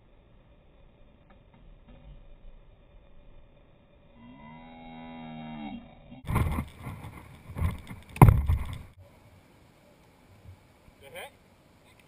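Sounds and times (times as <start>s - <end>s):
buffeting rumbles and thumps: 6.2s - 9.0s.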